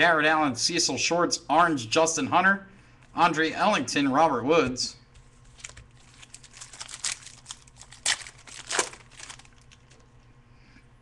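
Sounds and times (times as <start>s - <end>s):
foil wrappers and cards crinkling: 5.2s - 10.1s.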